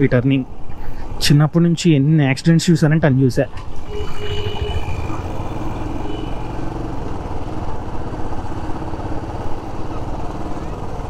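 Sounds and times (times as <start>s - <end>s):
motorcycle engine running: 3.8s - 11.0s.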